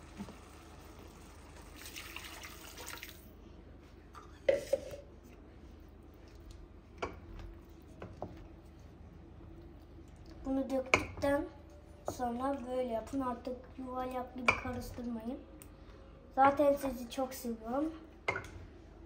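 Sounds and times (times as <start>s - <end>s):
water pouring into pot: 0.9s - 3.3s.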